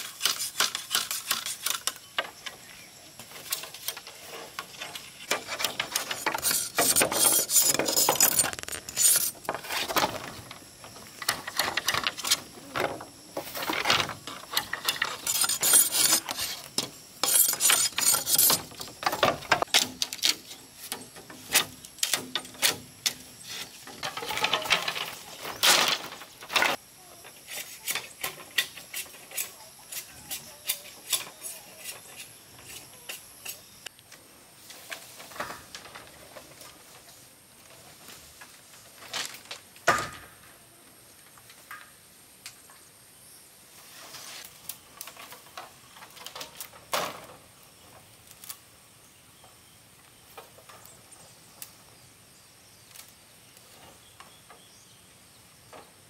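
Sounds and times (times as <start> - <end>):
rasping scraping strokes: 0.0 - 2.0, 3.3 - 10.3, 13.4 - 19.3.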